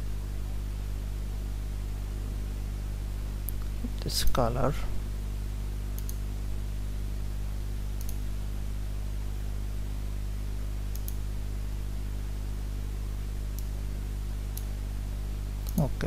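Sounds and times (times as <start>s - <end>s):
low hum: 0.0s - 16.0s
computer mouse double clicks: 6.0s - 6.2s, 10.9s - 11.2s.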